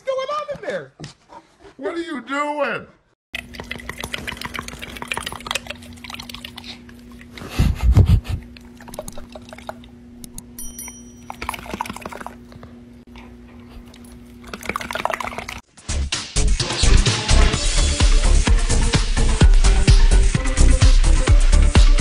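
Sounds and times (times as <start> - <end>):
dog's lips flapping: 3.6 - 9.9, 11.4 - 12.7, 14.0 - 15.6.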